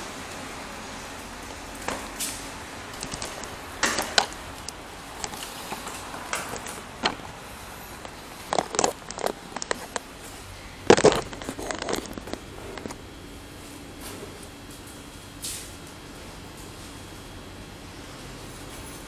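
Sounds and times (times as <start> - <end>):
microphone handling knocks and rattles: 10.8 - 13.0.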